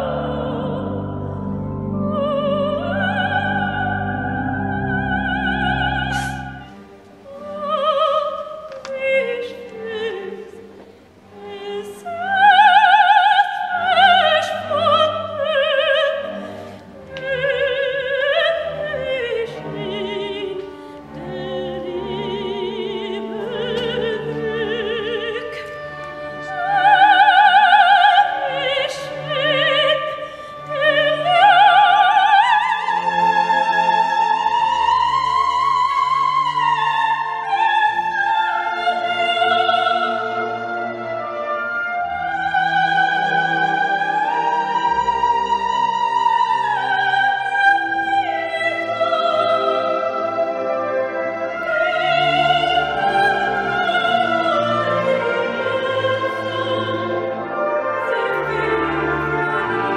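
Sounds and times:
operatic soprano singing: 0.0 - 59.9
small orchestra with strings: 0.0 - 59.9
pipe organ chords: 0.8 - 5.8.

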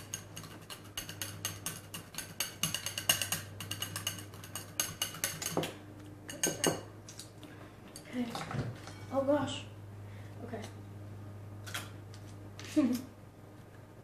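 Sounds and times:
metal whisk clinking against bowl: 0.0 - 5.7, 6.3 - 6.9
faint steady hum: 0.0 - 14.0.

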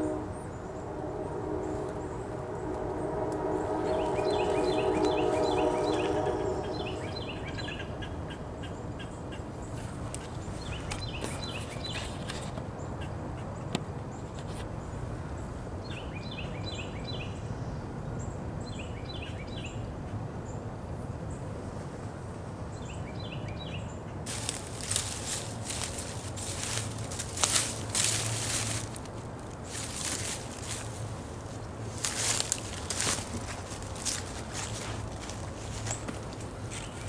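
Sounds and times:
steady outdoor hiss: 0.0 - 37.0
crackling rustle in brush: 9.7 - 12.6, 24.2 - 37.0.

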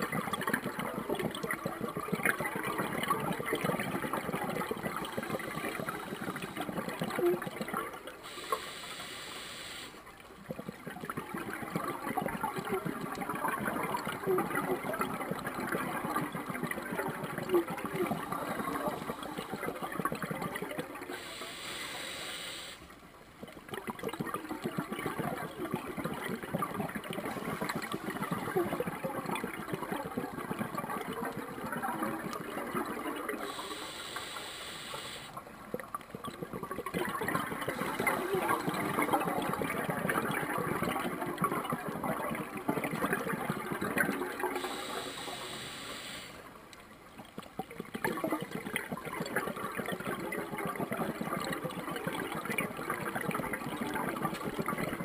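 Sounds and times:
crackling exhaust bubbles: 0.0 - 55.0
regulator inhalation hiss: 8.3 - 10.0, 21.2 - 22.9, 33.4 - 35.4, 44.6 - 46.4.

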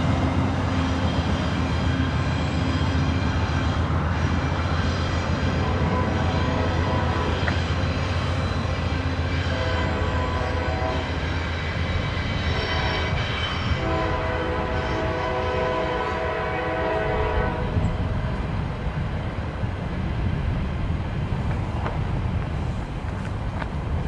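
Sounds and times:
diesel locomotives rumbling: 0.0 - 24.0
locomotive air horn: 4.5 - 11.4, 12.3 - 17.9.

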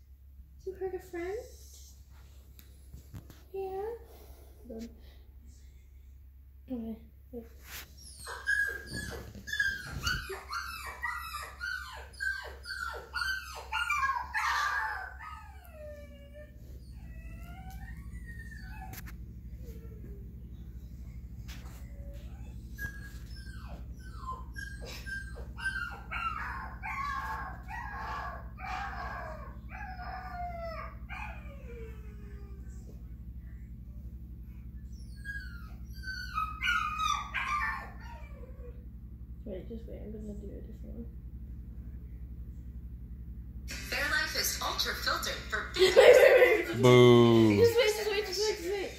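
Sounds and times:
dog whimpering: 8.0 - 20.8, 21.5 - 33.0, 34.8 - 38.8, 45.8 - 48.9
recorded animal cries: 8.2 - 19.1, 22.2 - 32.5, 34.9 - 38.7.

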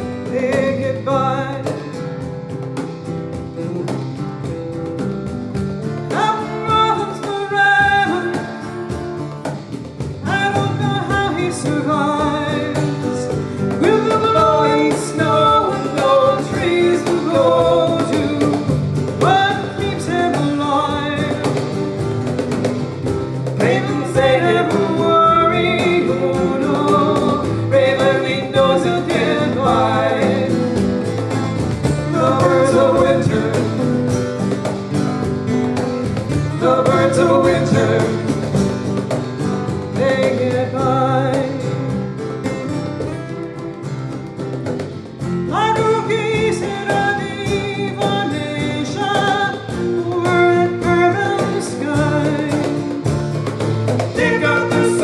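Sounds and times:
woman singing lead: 0.0 - 2.3, 6.0 - 9.2, 10.0 - 22.2, 22.9 - 34.6, 36.2 - 42.4, 45.4 - 53.3, 54.1 - 55.0
acoustic guitars: 0.0 - 55.0
cajon: 0.0 - 55.0
electric bass: 21.4 - 46.4.

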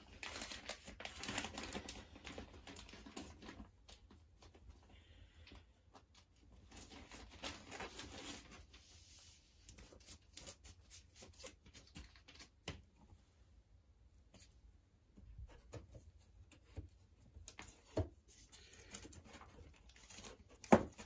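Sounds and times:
record jacket crinkling in plastic sleeve: 0.0 - 4.7, 6.2 - 10.7.

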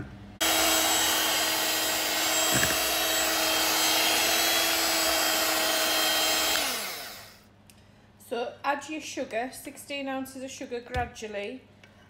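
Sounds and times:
whisk beating egg whites: 0.4 - 7.0
stand mixer motor hum: 0.4 - 7.4.

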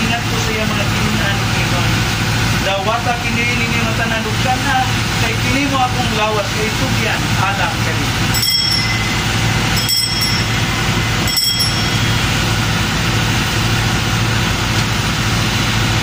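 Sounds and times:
low machine hum: 0.0 - 16.0
small bell ringing: 8.3 - 13.7.

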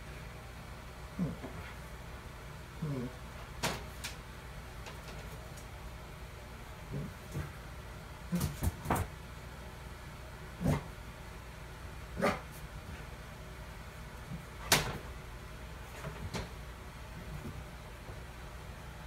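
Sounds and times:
dog play barks: 12.2 - 12.6.

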